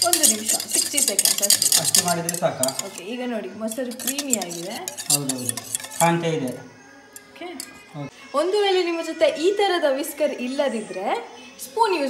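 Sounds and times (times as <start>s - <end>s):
whisk scraping in bowl: 0.0s - 3.1s, 3.7s - 6.3s.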